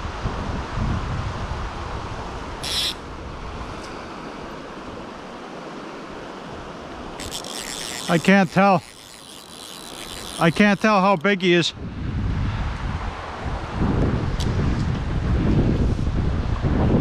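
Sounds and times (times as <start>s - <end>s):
wind rumbling on microphone: 0.0s - 10.9s, 11.7s - 17.0s
stream running over a riffle: 1.5s - 11.8s.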